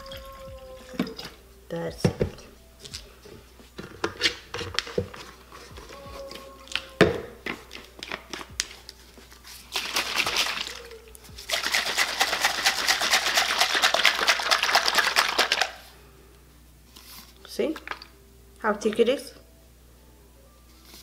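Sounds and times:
liquid sloshing in plastic bottle: 0:00.0 - 0:01.4, 0:09.6 - 0:15.8.

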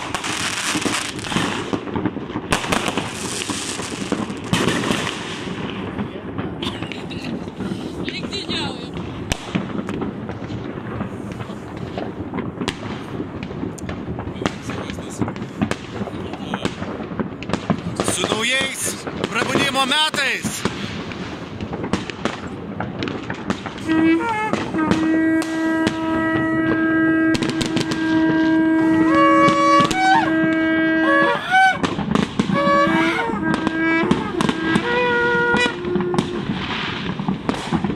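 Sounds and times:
firecracker bangs and cracks: 0:00.0 - 0:37.9
rumble of distant fireworks: 0:00.0 - 0:37.9
shofar blasts: 0:23.7 - 0:37.9.

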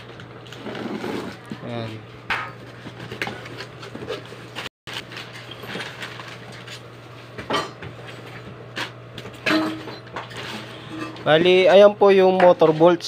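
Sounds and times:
cardboard box rustling and scraping: 0:00.6 - 0:01.7.

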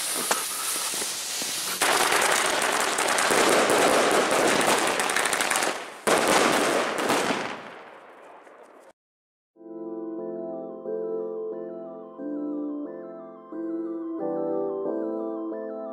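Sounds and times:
fuse hissing: 0:00.0 - 0:01.8
fireworks crackling: 0:00.0 - 0:09.0.

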